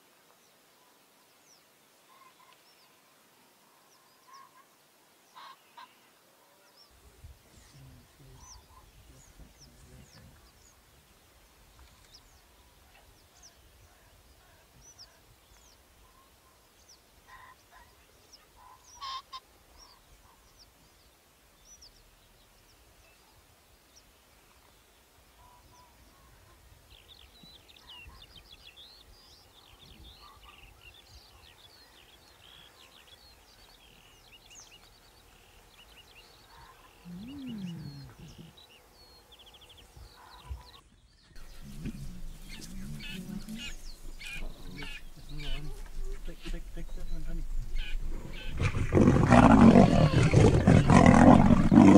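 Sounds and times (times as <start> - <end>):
birds chirping and whistling: 41.4 - 51.9.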